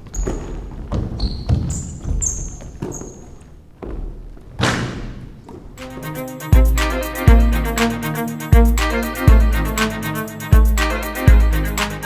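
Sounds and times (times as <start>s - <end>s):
basketball bouncing on hardwood floor: 0.0s - 5.6s
shoes squeaking on court: 0.0s - 5.8s.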